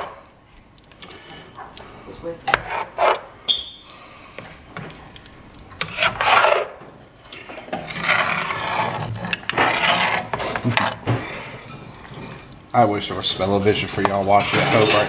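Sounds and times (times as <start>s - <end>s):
spoon scraping pot bottom: 2.4s - 3.7s, 5.8s - 12.6s.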